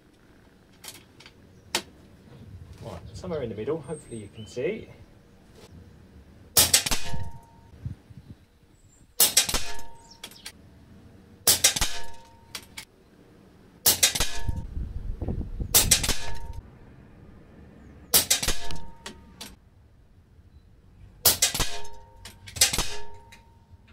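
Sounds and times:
air rifle shots: 6.6s - 7.7s, 9.2s - 10.6s, 11.4s - 12.9s, 13.8s - 14.7s, 15.7s - 16.6s, 18.1s - 19.6s, 21.2s - 23.5s
metallic clang ringing: 6.6s - 7.8s, 9.3s - 10.4s, 11.5s - 12.8s, 18.2s - 19.6s, 21.3s - 23.9s
pellet hitting steel trap: 9.2s - 10.4s, 11.5s - 12.8s, 18.2s - 19.6s, 21.2s - 23.6s.

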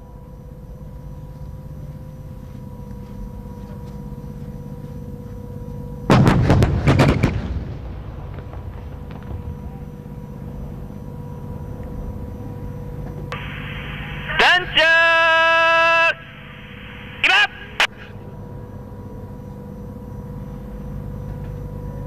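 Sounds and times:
howitzers firing with echo: 6.1s - 10.5s, 13.3s - 18.1s.

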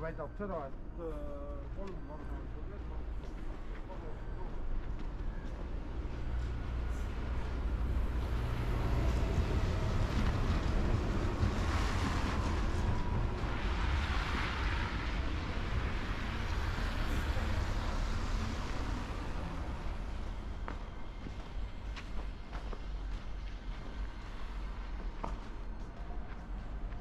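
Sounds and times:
wind rumble on microphone: 7.2s - 20.6s.

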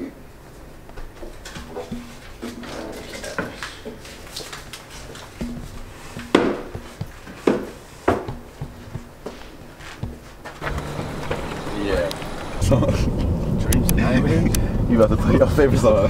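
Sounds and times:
backpack rustling: 1.0s - 12.6s
sharp knocks: 3.8s - 12.6s.

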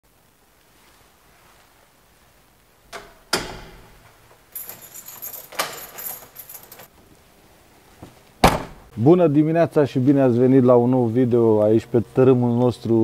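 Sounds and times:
door clunk: 2.9s - 4.2s, 8.4s - 8.9s
keys jangling: 3.8s - 6.9s.

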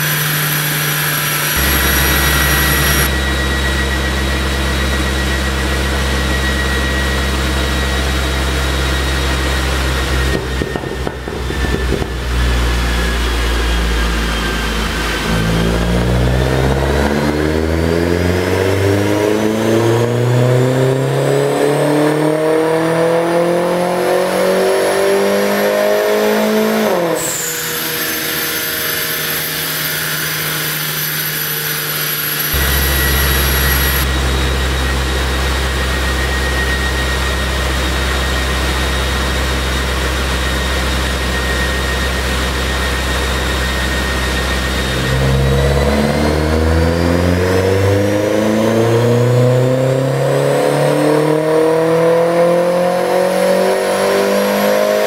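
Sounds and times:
car engine revving: 0.0s - 29.2s, 32.0s - 55.0s
low steady drone: 1.1s - 22.0s, 32.4s - 53.9s.

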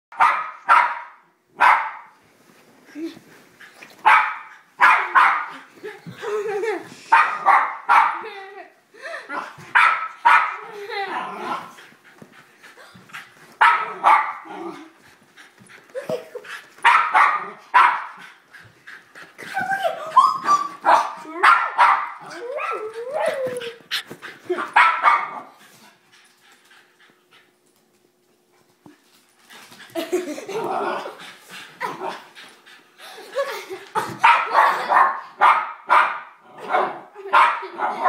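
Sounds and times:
dog barking and whining: 4.0s - 5.6s, 7.1s - 8.3s, 13.6s - 14.5s, 16.8s - 18.2s, 19.6s - 23.8s, 24.5s - 25.6s.

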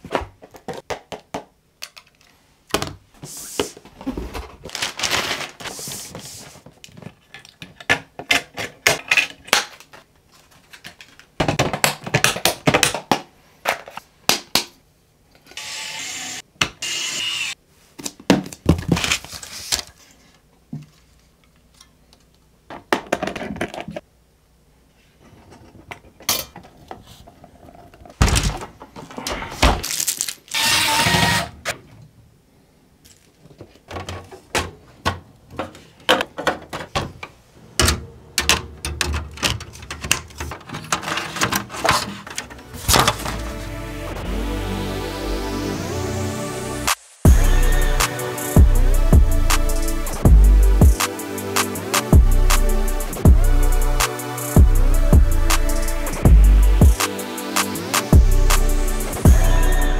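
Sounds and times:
packaging rustling: 4.0s - 7.5s.

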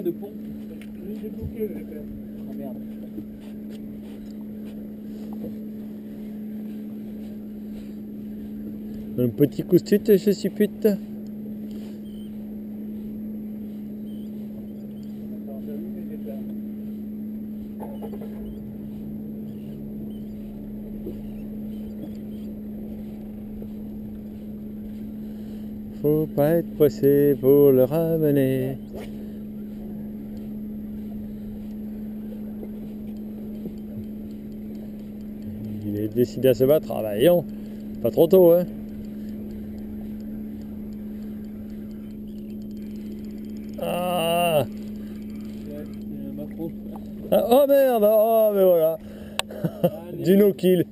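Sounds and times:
boat engine idling: 0.0s - 50.9s
fishing reel ticking: 33.0s - 47.3s
man exclaiming: 43.8s - 44.7s.

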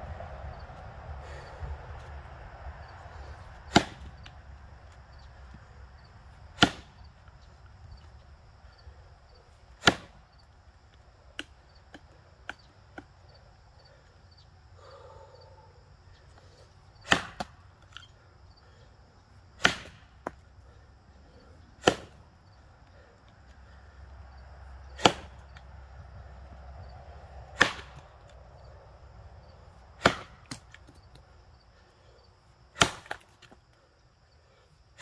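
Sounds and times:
axe chopping into log: 3.7s - 4.3s, 6.6s - 7.0s, 9.8s - 10.2s, 17.0s - 17.6s, 19.6s - 20.4s, 21.8s - 22.2s, 25.0s - 25.4s, 27.6s - 28.1s, 30.0s - 30.9s, 32.8s - 33.5s.

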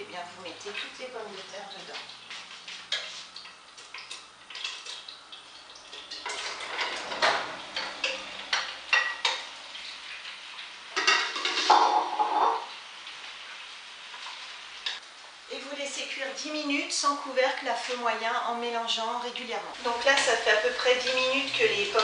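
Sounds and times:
fat sizzling: 0.0s - 22.0s
utensil clattering on plate and pot: 3.9s - 5.1s, 5.9s - 9.5s, 10.9s - 12.6s.

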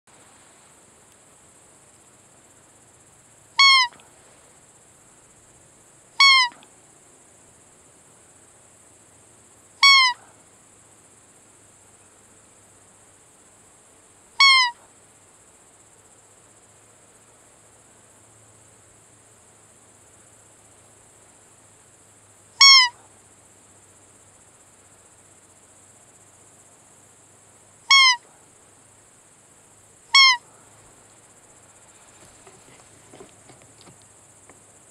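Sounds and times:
deer call high peeps: 3.6s - 4.0s, 6.2s - 6.6s, 9.8s - 10.2s, 14.4s - 14.8s, 22.6s - 23.0s, 27.9s - 28.3s, 30.1s - 30.5s.

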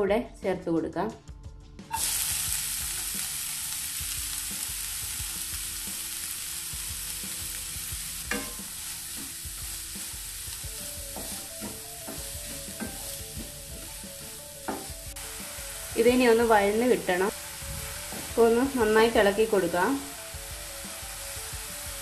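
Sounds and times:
onions sizzling in oil: 1.9s - 22.0s
wooden spatula knocking on pan: 11.1s - 15.0s, 18.1s - 18.4s.

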